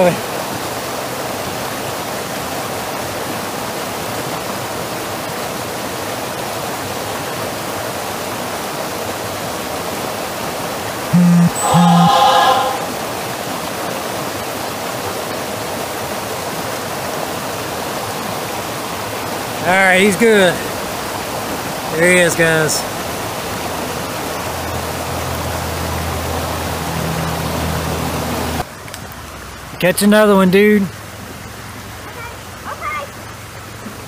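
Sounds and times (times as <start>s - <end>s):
creek running over rocks: 0.0s - 11.1s, 12.9s - 34.0s
voice-like hum: 11.2s - 13.0s.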